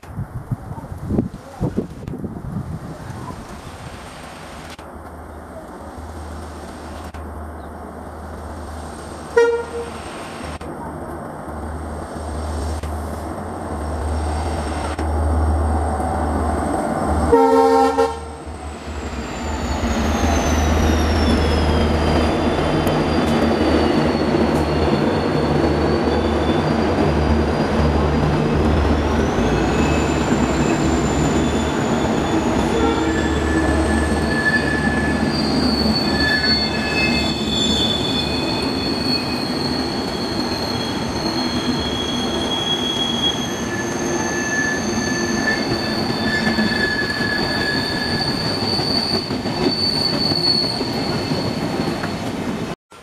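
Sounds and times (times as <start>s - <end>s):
diesel locomotive engine rumble: 0.2s - 45.0s
train wheels rushing on rails: 1.0s - 53.0s
train horn blast: 9.3s - 10.0s, 17.3s - 18.4s, 32.6s - 33.6s
high wheel squeal: 18.4s - 28.4s, 29.1s - 52.4s.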